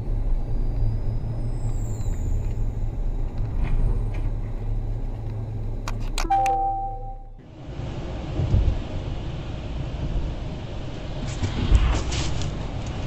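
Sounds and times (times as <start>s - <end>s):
car driving rumble from inside: 0.0s - 13.0s
steady multi-pitch tone: 6.2s - 7.4s.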